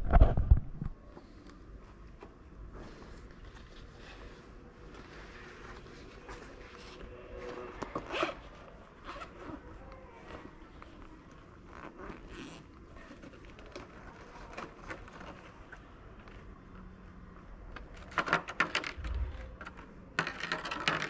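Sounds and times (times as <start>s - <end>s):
zipper pulled open: 11.6s - 13.2s.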